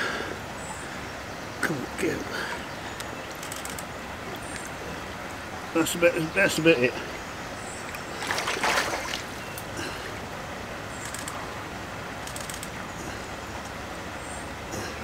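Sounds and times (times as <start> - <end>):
water sloshing: 2.3 - 10.4
water splashing: 3.8 - 10.4.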